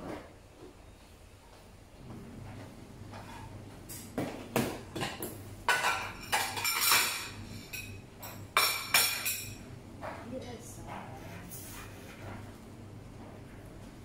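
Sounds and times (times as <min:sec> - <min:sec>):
plates and cutlery clinking: 0:02.6 - 0:10.3.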